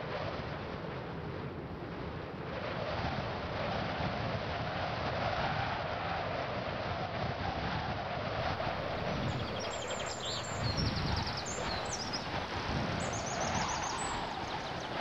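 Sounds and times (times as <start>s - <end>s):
outdoor background noise: 0.0s - 15.0s
songbird trilling: 8.4s - 15.0s.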